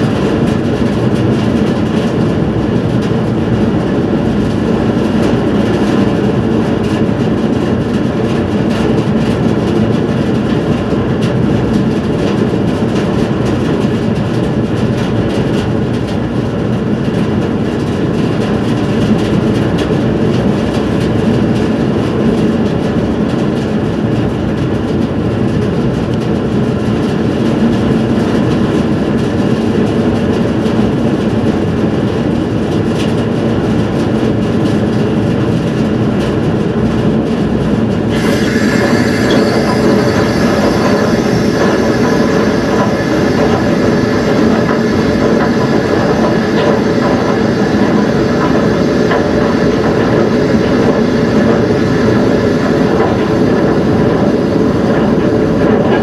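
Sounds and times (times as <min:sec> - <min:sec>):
ferry engine hum: 0:00.0 - 0:56.0
wind rushing: 0:38.0 - 0:55.6.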